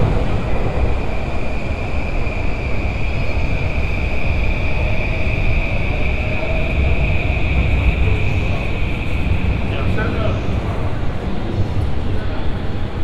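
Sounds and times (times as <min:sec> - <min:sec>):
train rumbling overhead: 0:00.0 - 0:13.0.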